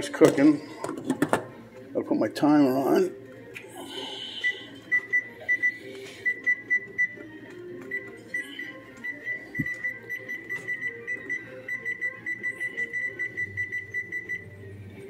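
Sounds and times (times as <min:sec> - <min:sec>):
keypad beeping: 0:04.4 - 0:14.6.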